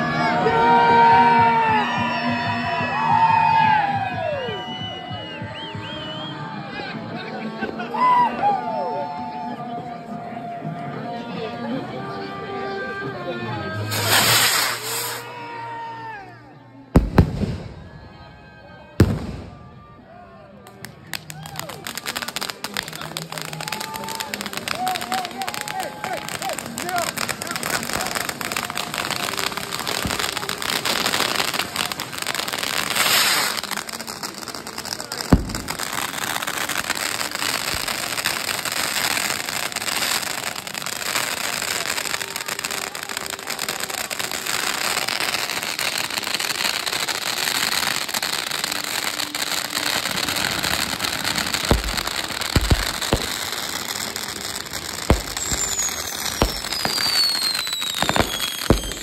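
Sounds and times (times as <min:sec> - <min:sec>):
fireworks crackle and hiss: 0:13.8 - 0:15.4, 0:17.0 - 0:17.8, 0:20.7 - 0:59.0
firework bang: 0:17.0 - 0:17.9, 0:35.3 - 0:36.1, 0:51.5 - 0:59.0
deep firework booms: 0:17.0 - 0:18.0, 0:19.0 - 0:19.6, 0:35.4 - 0:36.0, 0:50.7 - 0:59.0
falling whistle: 0:55.1 - 0:59.0.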